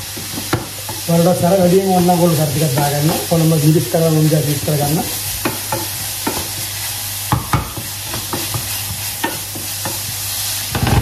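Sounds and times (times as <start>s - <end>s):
vegetables sizzling in oil: 0.0s - 11.0s
wooden spoon scraping a pan: 0.0s - 11.0s.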